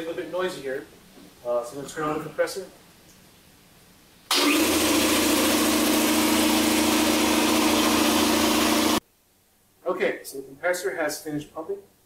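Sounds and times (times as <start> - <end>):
air compressor running: 4.3 - 9.0.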